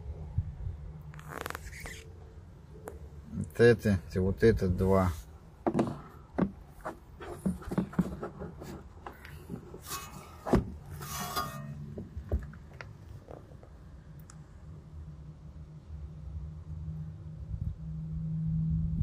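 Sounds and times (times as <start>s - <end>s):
faint low hum: 0.0s - 19.0s
plastic rustling scrapes: 6.8s - 11.8s.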